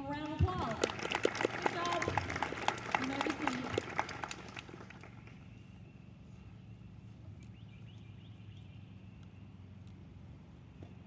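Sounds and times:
people clapping: 0.0s - 5.5s.

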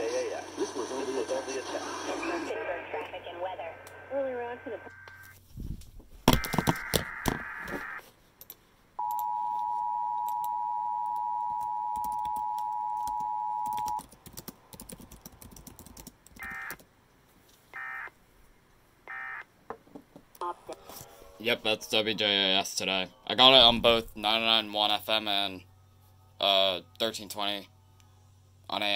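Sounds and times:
radio clicks: 6.3s - 8.0s, 16.4s - 16.8s.

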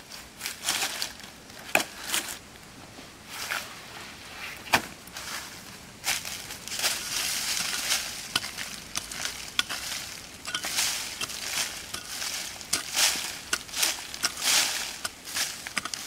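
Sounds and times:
dry leaves rustling: 0.0s - 2.4s, 3.2s - 16.0s
hand pick scraping leaves and soil: 0.0s - 2.4s, 3.2s - 16.0s
clicks of grit and stones: 6.9s - 16.0s.

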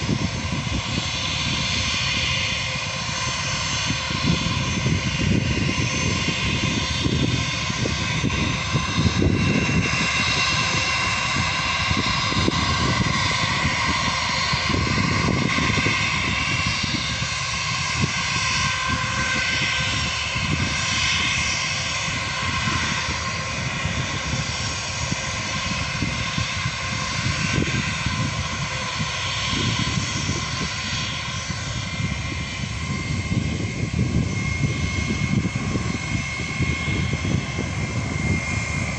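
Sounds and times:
jet engines whining: 0.0s - 38.9s.

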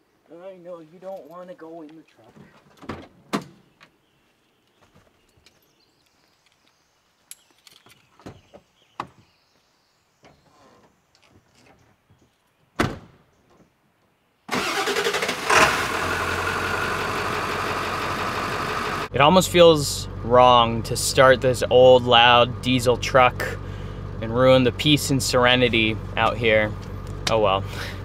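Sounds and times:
loud thump: 12.8s - 13.2s
diesel truck engine starting and idling: 14.5s - 28.0s.

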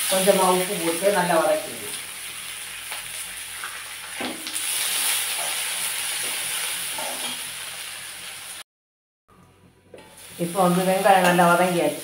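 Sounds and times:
onions sizzling in hot oil: 0.0s - 8.6s, 10.0s - 12.0s
spatula scraping and clinking pan: 6.2s - 7.5s.

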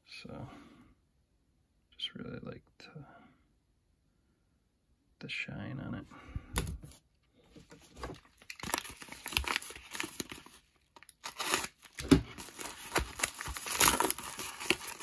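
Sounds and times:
paper mailer crinkling and tearing: 7.8s - 15.0s.

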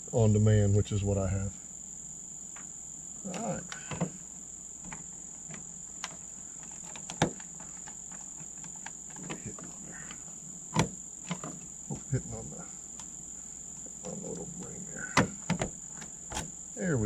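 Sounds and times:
crickets singing: 0.0s - 17.0s
plastic hatch clicking and knocking: 6.8s - 7.8s, 15.1s - 16.5s.

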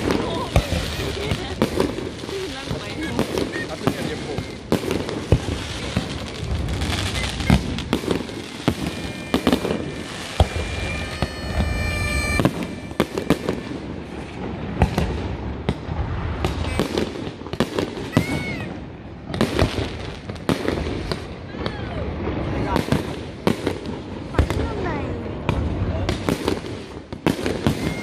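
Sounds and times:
firework high whistle: 0.0s - 2.1s, 6.7s - 14.5s, 16.4s - 17.2s, 27.3s - 28.0s
fireworks bangs and crackles: 0.0s - 28.0s.

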